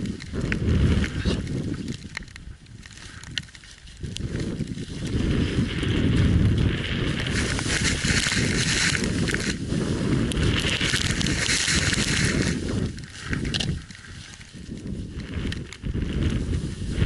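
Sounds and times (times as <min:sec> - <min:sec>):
wind buffeting microphone: 0:00.0 - 0:17.0
skis hissing through snow: 0:07.0 - 0:13.3.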